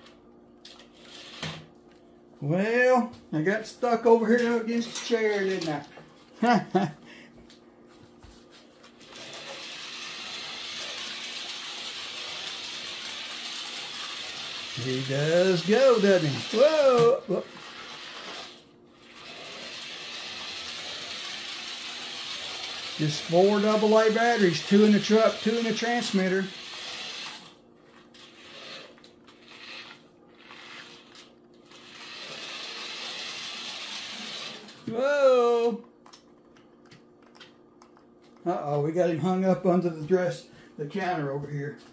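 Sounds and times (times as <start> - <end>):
toy truck motor whirring: 0.7 - 1.7, 8.9 - 34.8.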